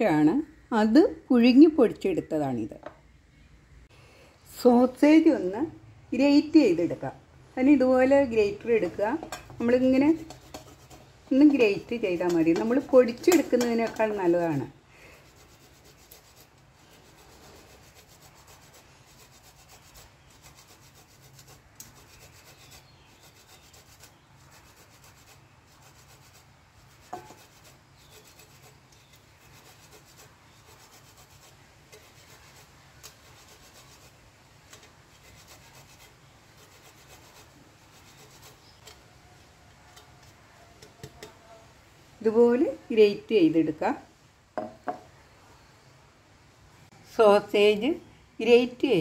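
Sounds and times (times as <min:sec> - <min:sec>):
sausage scraping on grater: 0:09.6 - 0:39.0
light knock: 0:44.6 - 0:45.1.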